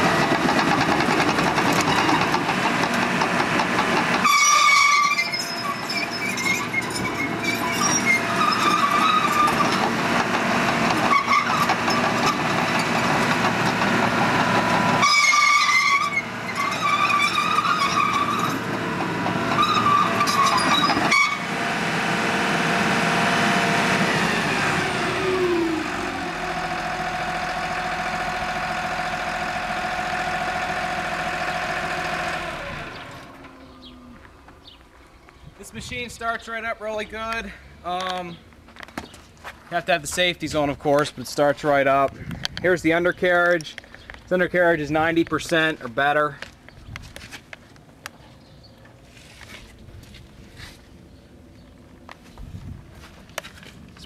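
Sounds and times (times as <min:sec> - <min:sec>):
diesel engine running: 0:00.0 - 0:36.0
steel tracks squealing: 0:00.6 - 0:21.6.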